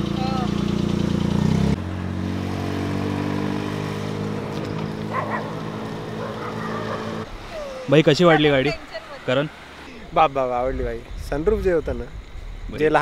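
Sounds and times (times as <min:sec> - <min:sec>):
vehicle engine running: 0:00.0 - 0:07.3.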